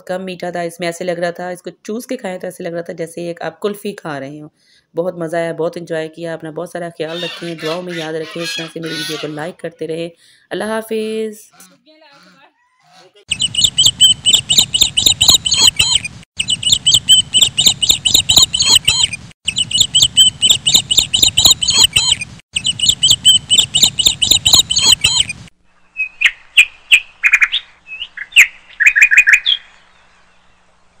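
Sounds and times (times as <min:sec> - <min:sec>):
small birds chirping: 0:11.6 - 0:30.6
sharp clicks: 0:13.6 - 0:19.2, 0:19.8 - 0:22.3.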